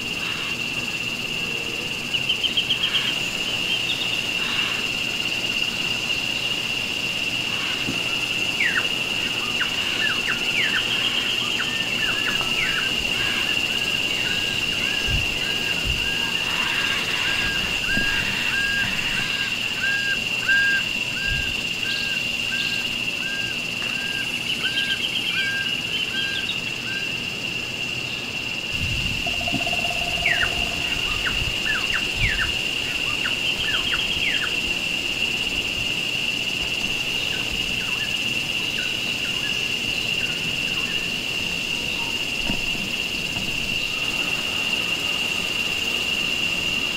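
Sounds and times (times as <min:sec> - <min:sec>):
high-pitched insect drone: 0:00.0 - 0:46.9
birds calling: 0:02.0 - 0:05.1, 0:07.4 - 0:27.2, 0:29.2 - 0:34.6
downward-sweeping whistles: 0:08.6 - 0:27.2, 0:28.7 - 0:34.6.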